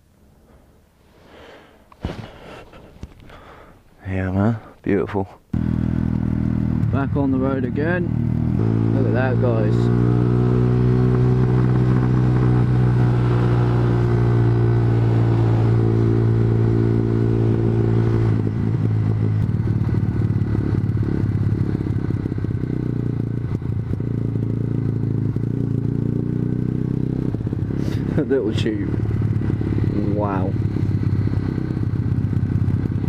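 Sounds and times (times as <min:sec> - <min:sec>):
motorcycle engine running: 0:05.6 - 0:33.0
rough uneven engine noise: 0:22.9 - 0:33.0.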